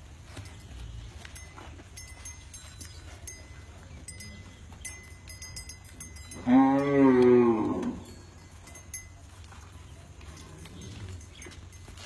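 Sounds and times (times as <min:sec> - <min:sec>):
bull mooing: 0:06.4 - 0:08.1.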